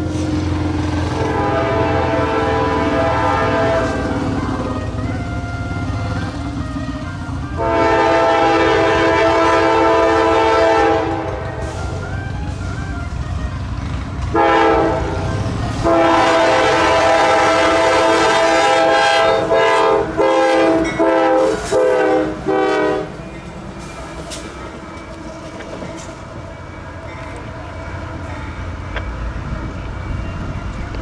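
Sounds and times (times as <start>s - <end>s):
low rumble of passing locomotives: 0.0s - 31.0s
locomotive air horn blasts: 0.1s - 23.2s.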